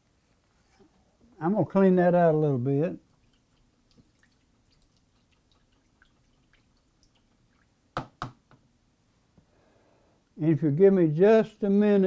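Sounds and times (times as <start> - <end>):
paintbrush ticks and drips: 2.9 - 7.8.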